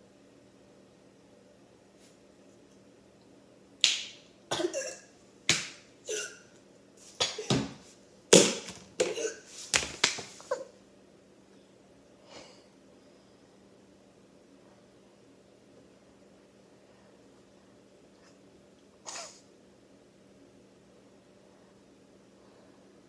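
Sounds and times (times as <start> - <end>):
boy coughing and gagging: 4.5 - 5.1, 6.1 - 6.4, 7.2 - 7.7, 9.0 - 9.5.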